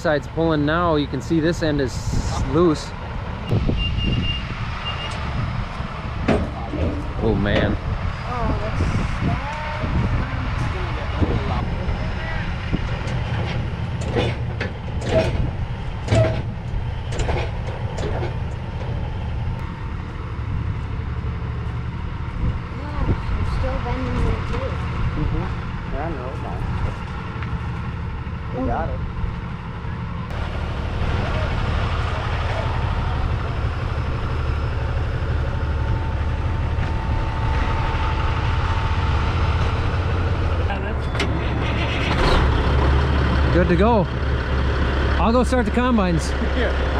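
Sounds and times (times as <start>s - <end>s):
diesel engines running: 0.0s - 46.9s.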